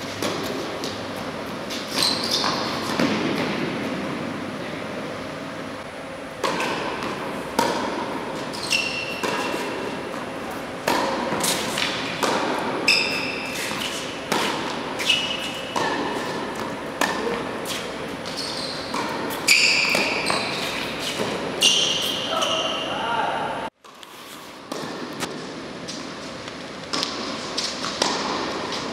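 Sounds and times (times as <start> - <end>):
tennis balls bouncing on hard court: 0.1 - 4.0, 6.3 - 22.5, 24.6 - 26.1, 26.8 - 28.9
tennis balls struck by rackets: 2.4 - 4.0, 6.3 - 21.6, 24.6 - 26.1, 26.8 - 28.9.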